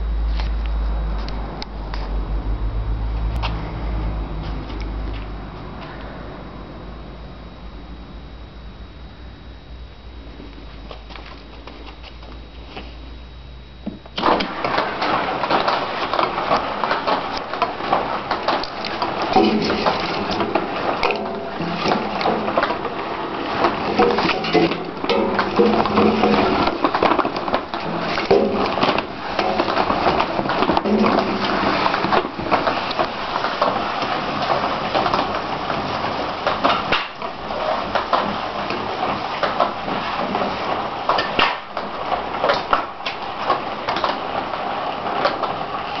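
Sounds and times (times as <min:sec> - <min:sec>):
firewood knocking along trough: 0:13.8 - 0:46.0
chain conveyor rattling and clattering: 0:14.2 - 0:46.0.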